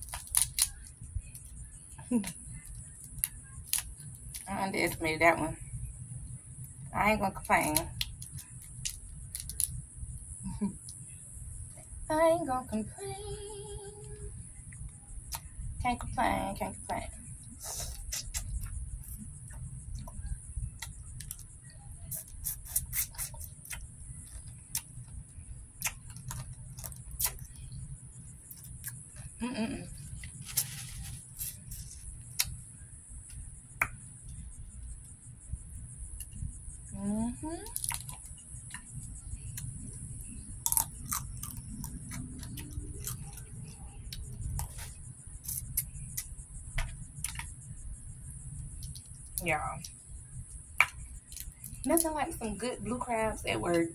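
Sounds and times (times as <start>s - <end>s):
low rumble and hiss: 0.0s - 53.9s
crab shell clicks: 8.0s - 9.8s
mouth smacks: 17.6s - 19.2s, 25.8s - 27.6s
lip smacks and sucking: 17.6s - 20.2s, 22.1s - 25.1s, 25.8s - 27.8s, 30.2s - 32.6s, 40.7s - 46.4s, 47.2s - 47.6s.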